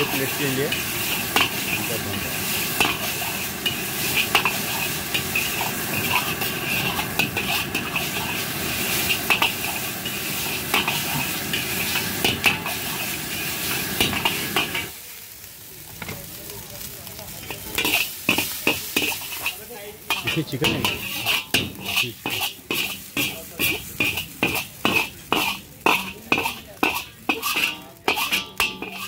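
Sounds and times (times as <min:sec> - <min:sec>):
ladle scraping a wok: 0:00.0 - 0:15.0, 0:17.3 - 0:29.0
rice sizzling in a wok: 0:00.0 - 0:29.0
ladle clinking on pan: 0:20.1 - 0:29.0.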